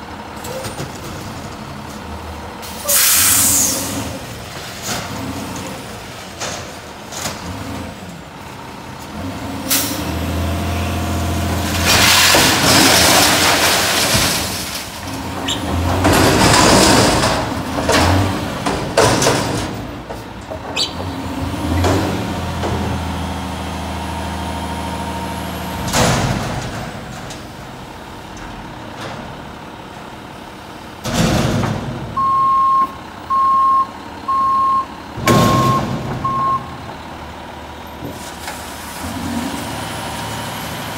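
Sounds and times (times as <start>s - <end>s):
air brakes hissing: 2.6s - 4.2s
garbage truck engine revving: 3.4s - 20.0s, 20.6s - 40.9s
garbage crashing into hopper: 11.2s - 19.9s
reversing alarm beeping: 32.2s - 36.9s.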